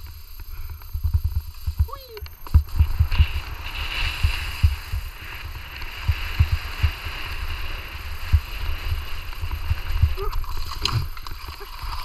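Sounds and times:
skis hissing over snow: 0:00.0 - 0:12.0
wind buffeting microphone: 0:02.4 - 0:12.0.

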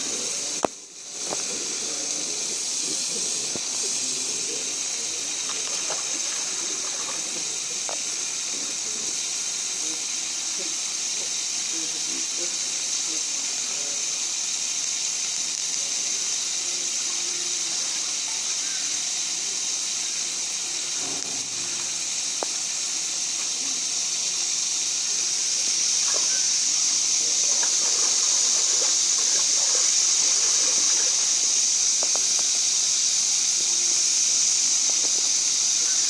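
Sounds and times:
high-pitched hiss: 0:00.0 - 0:36.0
small splashes: 0:03.2 - 0:08.8, 0:27.2 - 0:31.4
faint ticks: 0:05.4 - 0:08.2.

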